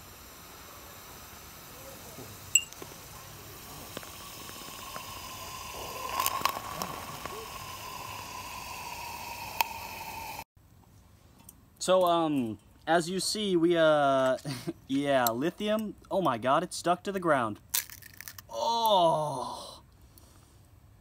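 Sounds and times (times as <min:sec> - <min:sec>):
chemical reaction hissing and sizzling: 0:00.0 - 0:10.5
crackles: 0:00.0 - 0:10.5, 0:17.6 - 0:18.6.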